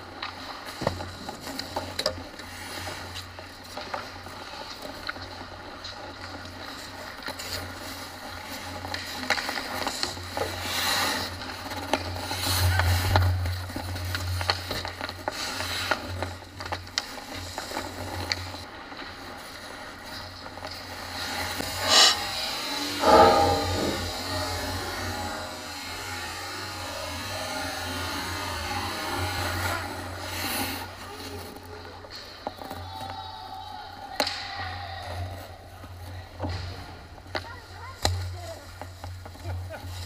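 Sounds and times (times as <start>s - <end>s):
skates scraping ice: 0.0s - 23.0s, 27.2s - 32.9s
hockey sticks and puck clacking: 0.1s - 19.1s, 34.1s - 35.2s, 35.8s - 40.0s
steady low hum: 21.6s - 27.6s.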